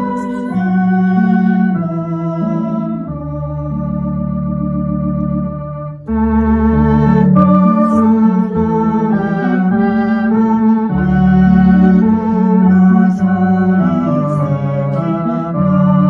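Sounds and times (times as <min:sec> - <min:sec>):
electronic organ playing hymn: 0:00.0 - 0:16.0.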